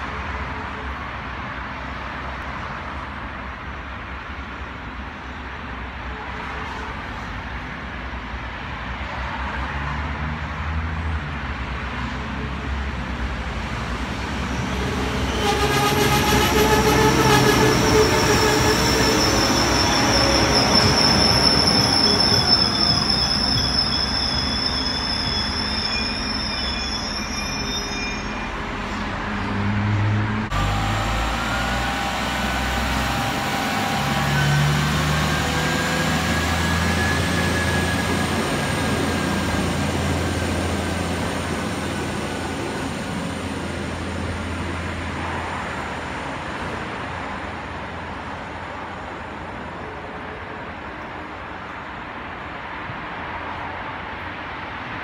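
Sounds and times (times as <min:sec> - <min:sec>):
train brakes squealing: 0:14.4 - 0:29.5, 0:30.6 - 0:43.4.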